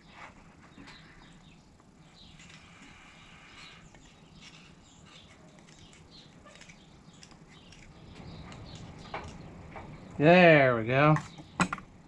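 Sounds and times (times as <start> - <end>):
pick scratching and clicking: 4.0 - 9.4.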